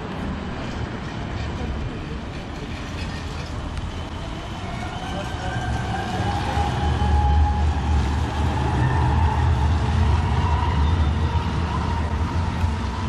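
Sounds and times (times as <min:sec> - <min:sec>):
tram rumbling past: 0:00.0 - 0:13.0.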